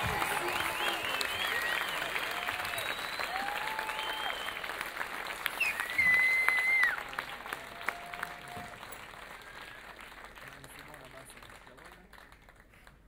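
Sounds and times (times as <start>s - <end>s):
audience applauding: 0.0s - 13.0s
whoops and whistles: 0.8s - 4.7s, 5.6s - 7.0s.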